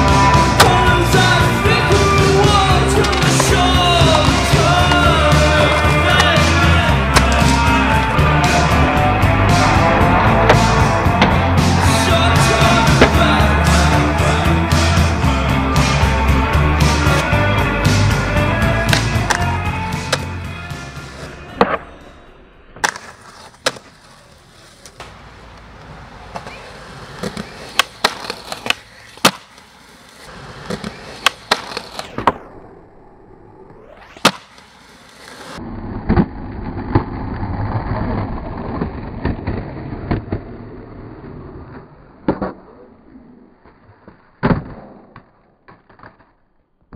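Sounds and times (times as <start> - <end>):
skateboard wheels rolling on pavement: 0.0 - 21.8, 22.7 - 46.9
skateboard grinding on concrete: 0.0 - 21.9, 22.8 - 44.4
skateboard tail pops and landings: 0.2 - 1.3, 3.0 - 7.6, 10.4 - 11.8, 18.8 - 20.3, 22.8 - 24.0, 24.8 - 32.6, 33.7 - 37.2, 43.7 - 46.9.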